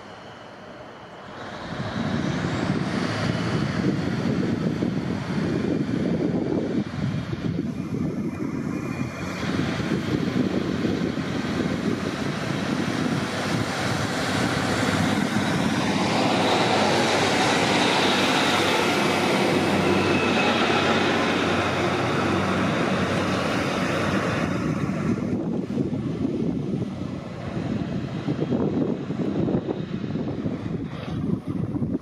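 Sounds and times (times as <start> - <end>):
diesel train passing: 0.0 - 32.0.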